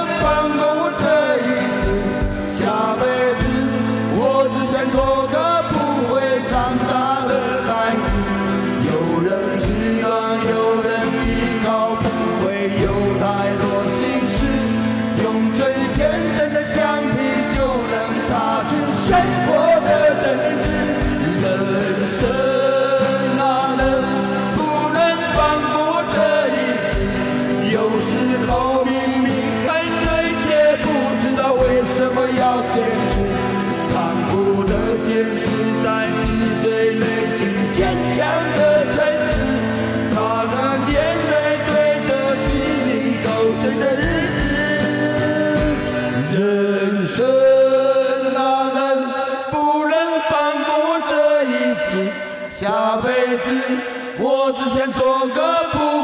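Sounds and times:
live band playing: 0.0 - 49.6
men singing: 0.0 - 56.0
strummed acoustic guitars: 0.0 - 56.0
electronic drum beat: 14.0 - 46.0.

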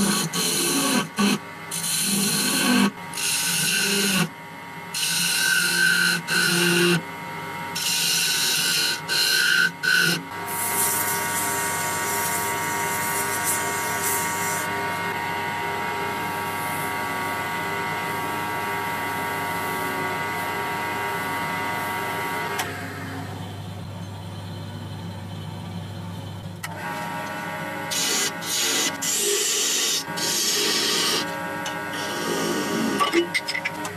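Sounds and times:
harsh rasping grinding: 0.0 - 4.3, 5.0 - 7.0, 7.8 - 14.7, 27.9 - 31.3, 31.9 - 33.8
power tool whining: 0.0 - 4.3, 4.9 - 7.1, 7.7 - 23.5, 26.6 - 33.9.

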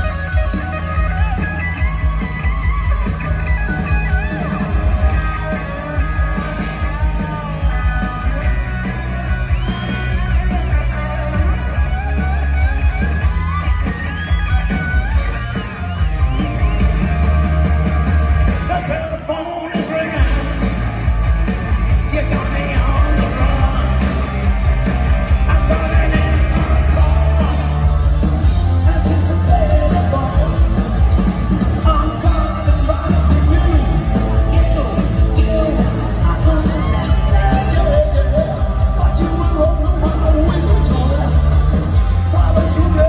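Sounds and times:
bass: 0.0 - 43.0
heavy drums: 0.0 - 43.0
lead singer's voice: 21.9 - 24.5, 25.3 - 43.0.

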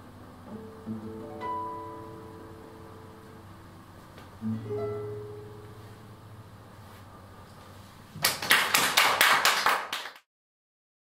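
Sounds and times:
guitar chord ringing: 0.0 - 3.8, 4.4 - 6.5
audience clapping: 8.2 - 10.3.

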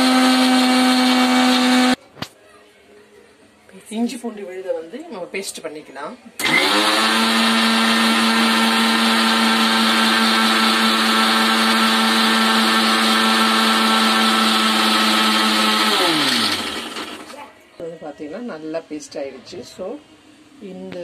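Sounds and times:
electric mixer grinder running: 0.0 - 2.0, 6.4 - 17.3.

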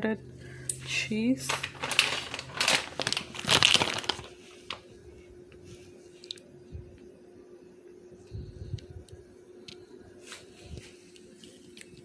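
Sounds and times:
steady low hum: 0.0 - 12.0
plastic bag crinkling: 0.8 - 4.9.

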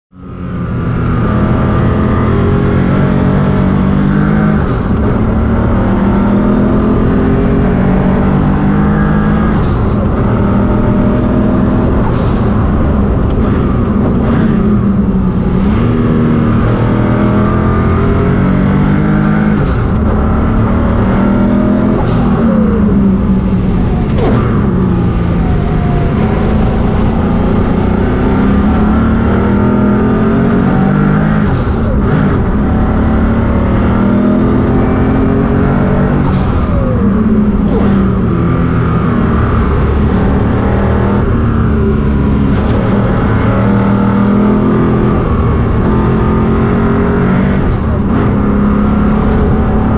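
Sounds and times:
race car engine accelerating: 0.1 - 49.9.

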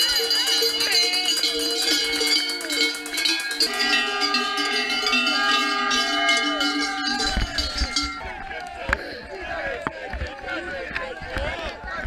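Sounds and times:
cowbells ringing: 0.0 - 9.3
spectators shouting: 0.0 - 12.0.

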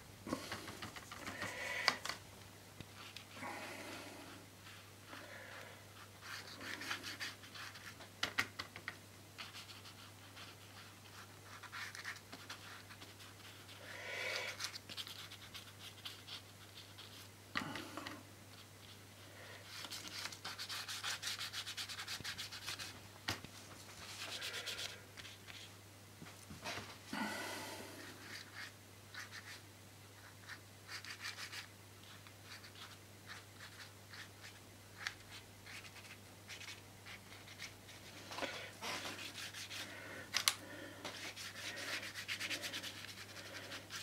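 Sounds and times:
low steady hum: 0.0 - 44.0
paintbrush rubbing on paper: 6.0 - 8.0, 9.4 - 13.8, 14.5 - 17.3, 19.6 - 23.0, 23.8 - 25.7, 28.0 - 29.6, 30.2 - 38.2, 38.8 - 40.0, 41.1 - 44.0.

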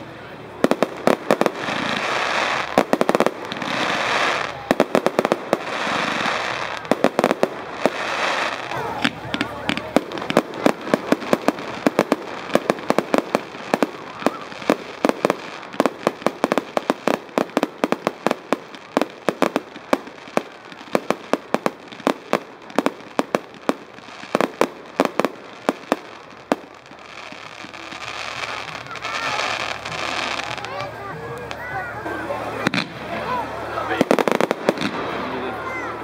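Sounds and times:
fireworks bangs: 0.0 - 36.0.

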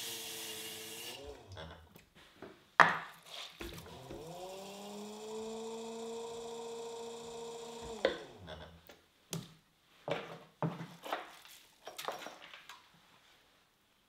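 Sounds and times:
pottery wheel motor hum: 0.0 - 2.0, 3.6 - 8.8.

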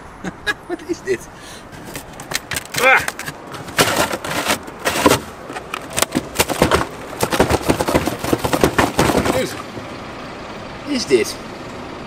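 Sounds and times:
objects clicking and knocking: 1.8 - 9.9.

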